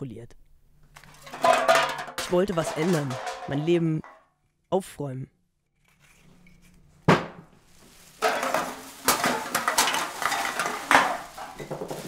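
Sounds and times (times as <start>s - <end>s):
bottles and cans clattering: 1.0s - 4.4s, 7.1s - 12.0s.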